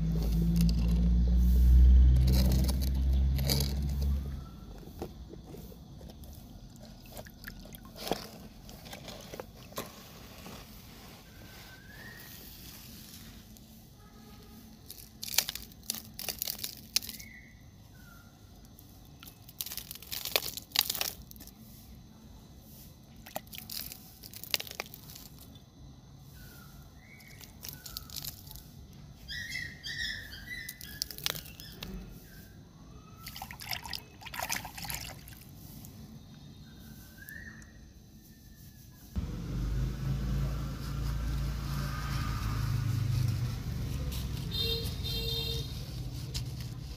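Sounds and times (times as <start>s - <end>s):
sand scraping and pattering: 0.0s - 14.0s, 40.0s - 46.9s.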